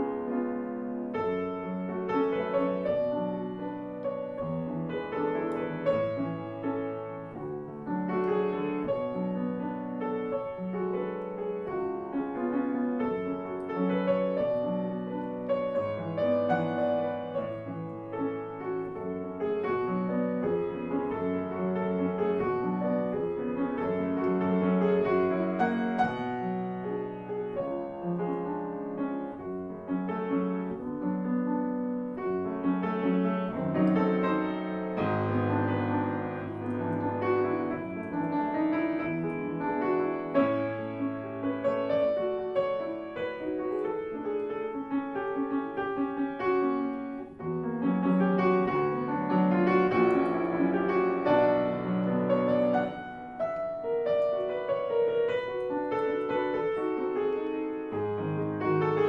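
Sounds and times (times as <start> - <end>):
solo piano piece: 0.0 - 59.0.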